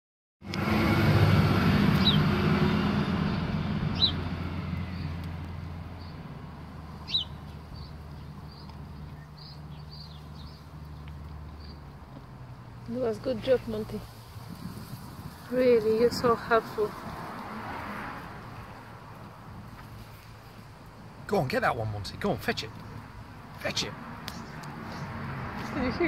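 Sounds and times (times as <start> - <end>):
low engine hum: 0.4 - 26.0
bird chirps: 2.0 - 2.3, 3.9 - 5.2, 7.0 - 11.9.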